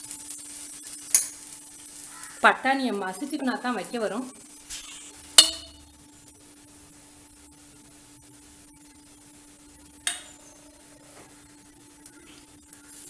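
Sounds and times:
low steady hum: 0:00.0 - 0:13.0
metal utensil clink: 0:01.1 - 0:01.4, 0:05.4 - 0:05.8.

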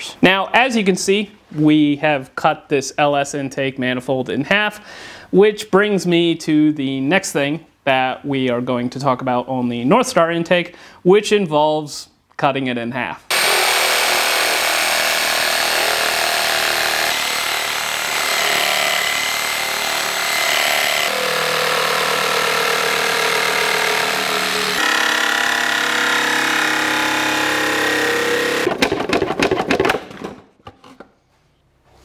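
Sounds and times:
reciprocating saw cutting plastic: 0:13.3 - 0:28.7
plastic pieces knocking and clattering: 0:28.7 - 0:30.7.

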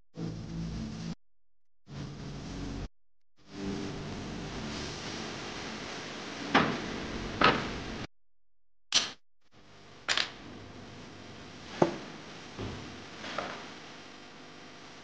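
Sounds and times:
wood knocking on workbench: 0:11.8 - 0:12.8.

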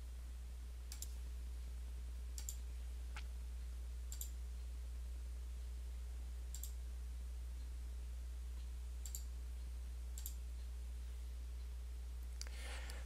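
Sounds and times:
steady low hum: 0:00.0 - 0:13.0
computer mouse clicking: 0:00.9 - 0:01.2, 0:02.4 - 0:02.6, 0:04.1 - 0:04.4, 0:06.5 - 0:06.8, 0:09.0 - 0:09.3, 0:10.2 - 0:10.4.

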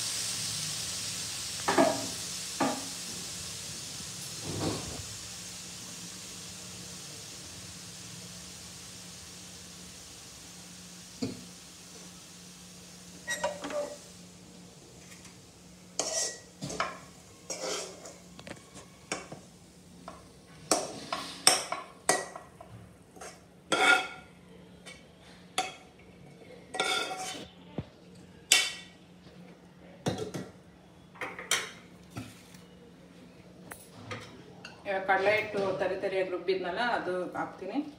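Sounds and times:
pots and lids clinking: 0:13.2 - 0:14.0, 0:16.0 - 0:19.4, 0:26.7 - 0:27.4.

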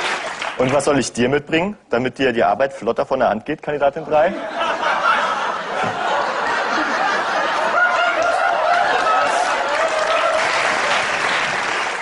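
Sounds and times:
audience laughing: 0:04.0 - 0:11.7.

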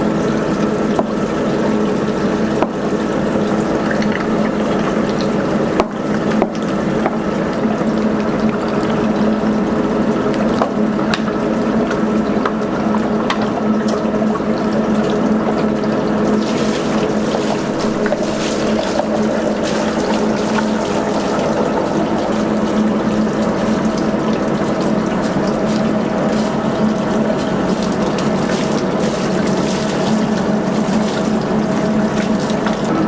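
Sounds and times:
machine humming: 0:00.0 - 0:33.0
running water hissing: 0:16.3 - 0:24.1.

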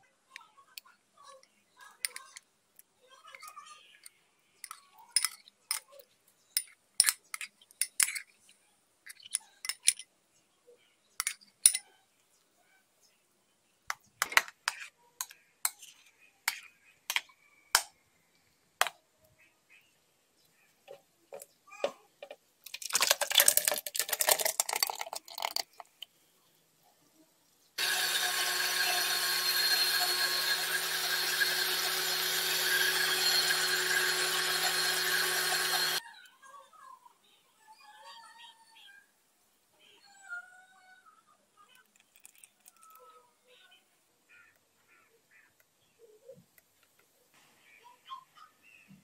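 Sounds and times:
electric blender running: 0:27.8 - 0:36.0.

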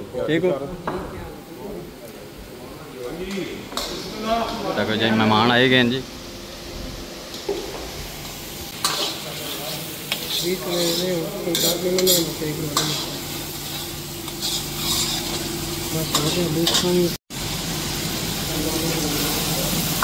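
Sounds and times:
food sizzling in a pan: 0:01.4 - 0:20.0
metal ladle scraping and clinking: 0:10.1 - 0:15.5.

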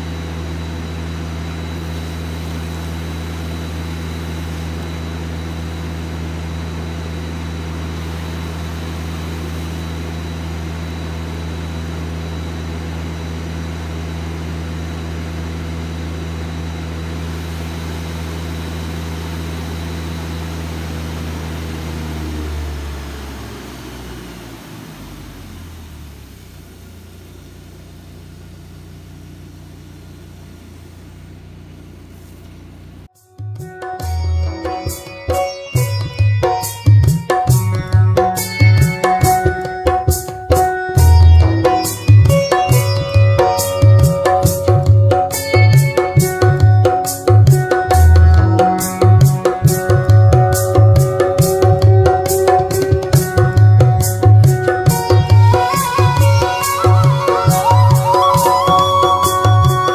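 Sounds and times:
engine-driven pump running: 0:00.0 - 0:33.1.

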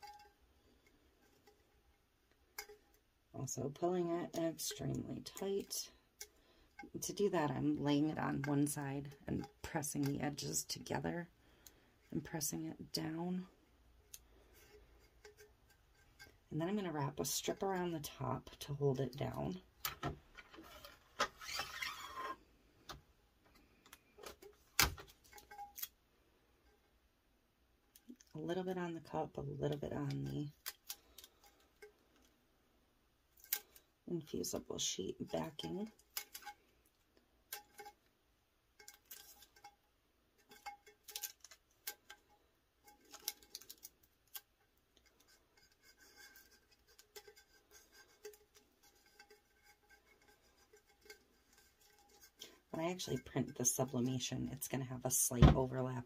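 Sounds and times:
tape handling clicks and rubs: 0:14.0 - 0:16.5, 0:19.8 - 0:26.0, 0:30.5 - 0:32.4, 0:33.3 - 0:33.9, 0:35.8 - 0:53.2.

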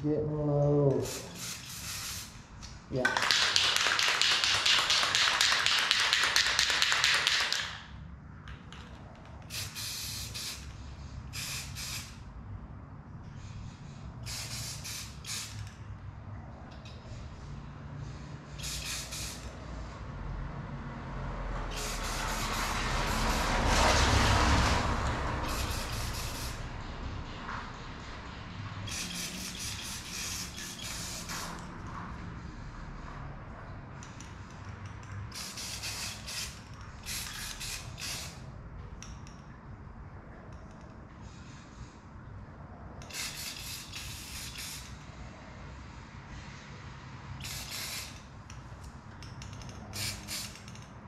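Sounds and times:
spray paint can hissing: 0:01.0 - 0:02.4, 0:03.2 - 0:07.9, 0:09.4 - 0:12.2, 0:14.2 - 0:15.7, 0:18.5 - 0:19.6, 0:21.7 - 0:26.8, 0:28.8 - 0:31.8, 0:35.2 - 0:38.5, 0:43.0 - 0:45.0, 0:47.3 - 0:48.3, 0:49.4 - 0:50.9.

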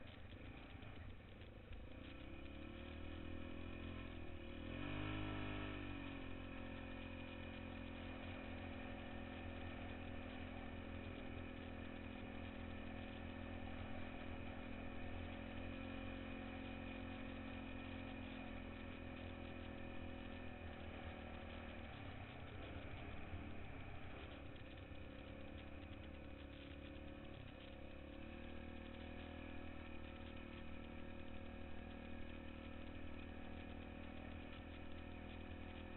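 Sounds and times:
quad bike engine running: 0:00.0 - 0:35.9.

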